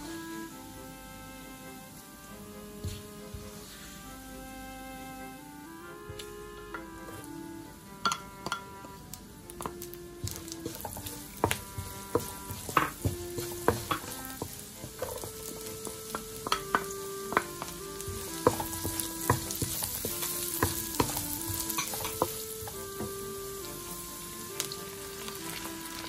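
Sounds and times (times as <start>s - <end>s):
garlic and onion sizzling in a pan: 1.9s - 4.7s, 5.6s - 26.0s
wooden spatula scraping a pan: 2.7s - 3.9s, 6.7s - 7.3s, 8.1s - 26.0s.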